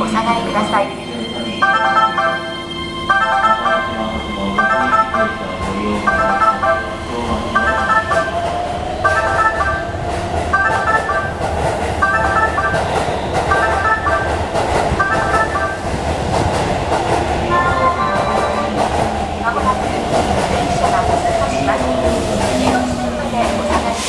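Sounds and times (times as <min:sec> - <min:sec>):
train rumbling past: 0:00.0 - 0:24.0
platform warning chime melody: 0:01.3 - 0:08.4, 0:12.0 - 0:14.4, 0:15.0 - 0:15.9, 0:17.5 - 0:18.8.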